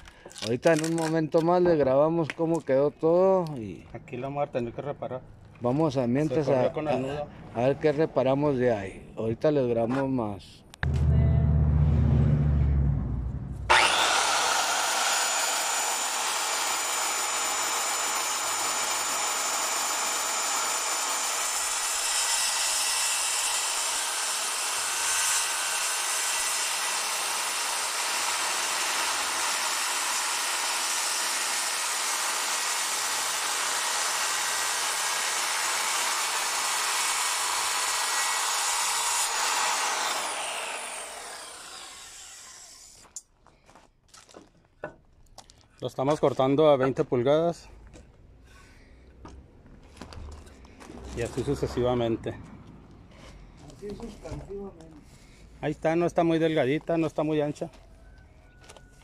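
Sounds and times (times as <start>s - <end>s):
circular saw cutting wood: 10.8s - 43.1s.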